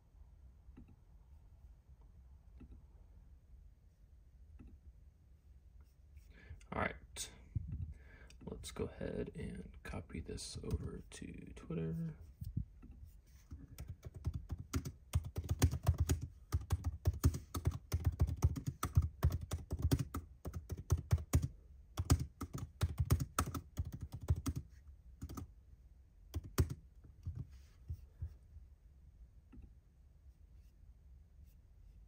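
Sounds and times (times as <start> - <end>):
laptop keyboard typing: 13.5 - 25.5, 26.3 - 27.5.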